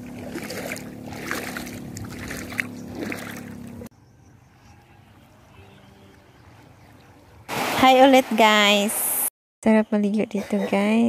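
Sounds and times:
boat engine humming: 0:00.0 - 0:09.2.

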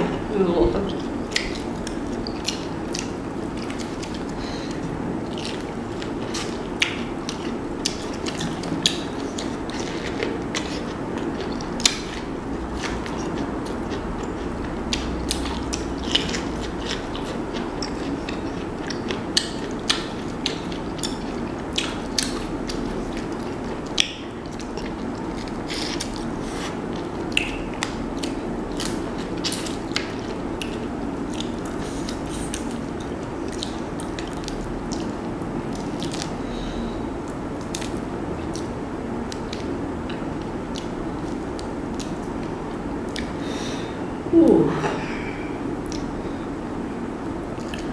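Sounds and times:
steady background noise: 0:00.0 - 0:47.9
biting and chewing food: 0:00.9 - 0:36.5.

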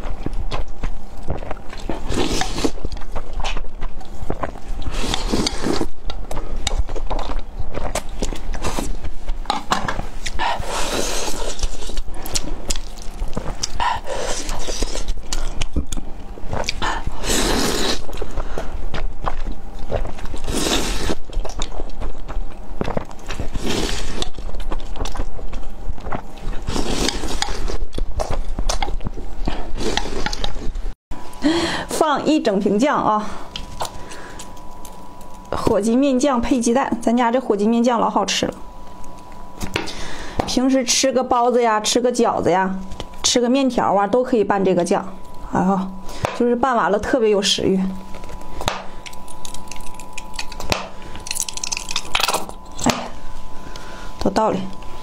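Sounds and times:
wet chewing clicks: 0:00.0 - 0:30.7, 0:48.1 - 0:53.1
noodles slurped: 0:04.4 - 0:06.0.

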